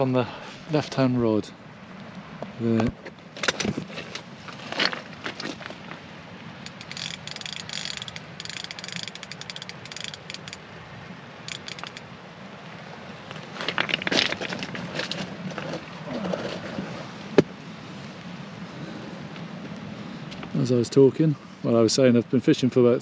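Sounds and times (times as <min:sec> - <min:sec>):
fishing reel clicking: 0:06.6 - 0:10.6, 0:11.5 - 0:12.0.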